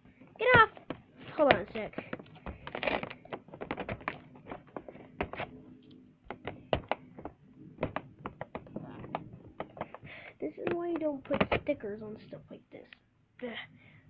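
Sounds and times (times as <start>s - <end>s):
fingernails scratching plastic: 0.4s - 5.6s.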